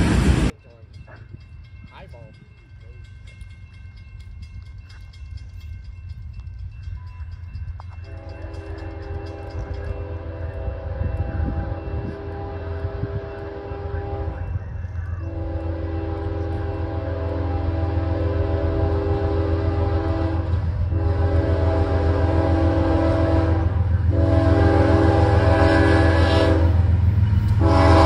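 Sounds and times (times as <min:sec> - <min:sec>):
deep train rumble: 0:00.0 - 0:28.0
train air horn: 0:08.1 - 0:14.6, 0:15.3 - 0:26.9, 0:27.5 - 0:28.0.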